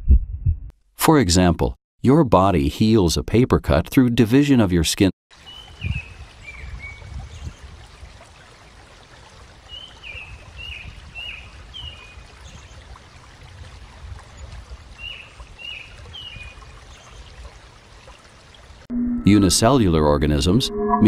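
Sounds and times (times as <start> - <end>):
running water: 5.3 - 18.9.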